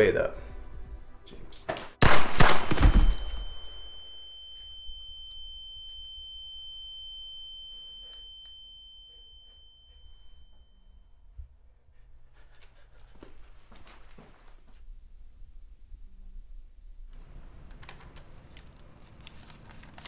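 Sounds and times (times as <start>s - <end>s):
handgun shot: 1.8s - 3.8s
high steady whine: 3.3s - 11.5s.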